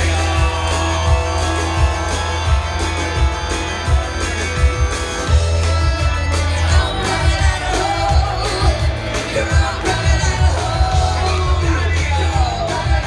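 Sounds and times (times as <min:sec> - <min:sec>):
live rock band: 0:00.0 - 0:13.0
person singing: 0:05.6 - 0:13.0.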